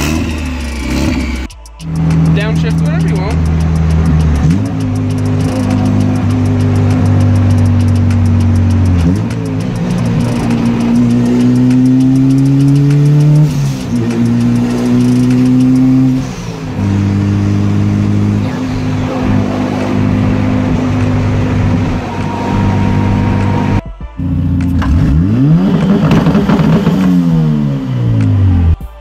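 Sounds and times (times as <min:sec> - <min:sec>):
car engine revving: 0:00.0 - 0:28.8.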